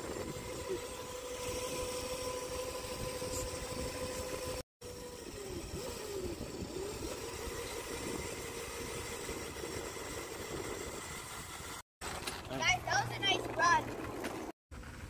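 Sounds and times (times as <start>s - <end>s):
electric motor whine: 0.0s - 11.8s.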